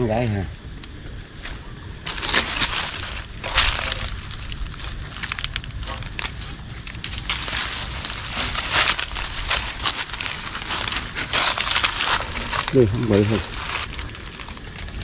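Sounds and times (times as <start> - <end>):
dry plants crunching and rustling: 1.5 - 15.0.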